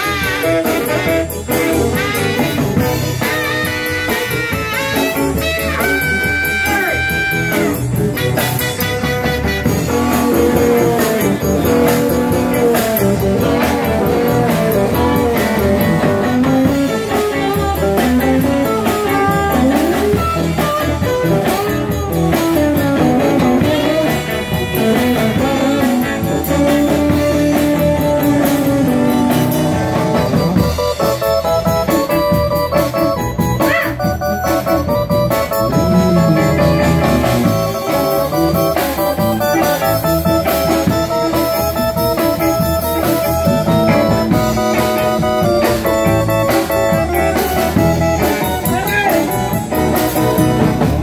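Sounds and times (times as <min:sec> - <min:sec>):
drums and bass: 0:00.0 - 0:51.0
electric guitar solo: 0:00.0 - 0:51.0
horns holding a note: 0:35.6 - 0:38.0.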